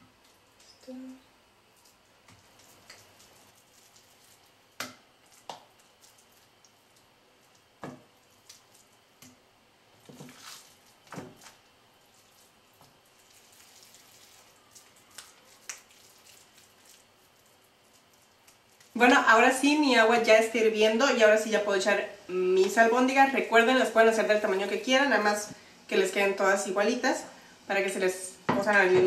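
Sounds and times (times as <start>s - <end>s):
soft wet slaps of meatballs: 4.8s - 6.7s, 15.1s - 16.0s.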